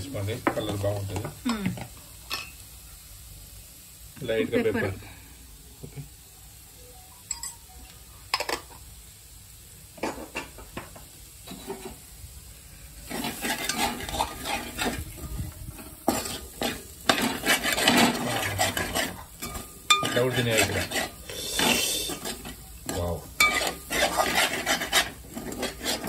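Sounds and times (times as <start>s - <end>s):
food sizzling: 0.0s - 26.0s
metal spatula scraping pot: 11.4s - 12.0s, 13.0s - 26.0s.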